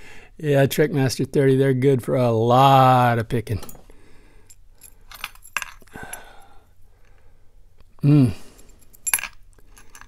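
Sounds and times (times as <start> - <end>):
keys clinking against lock: 3.6 - 6.4, 8.5 - 10.0
person grunting: 8.0 - 8.5.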